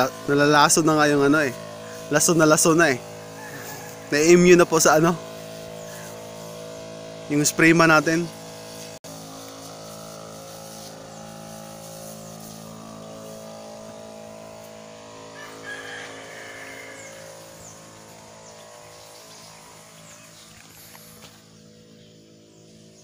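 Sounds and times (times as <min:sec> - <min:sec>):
birds chirping: 0:00.0 - 0:09.0, 0:10.7 - 0:23.0
sprayer pump humming: 0:00.0 - 0:23.0
rooster crowing: 0:03.3 - 0:04.2, 0:15.2 - 0:17.5.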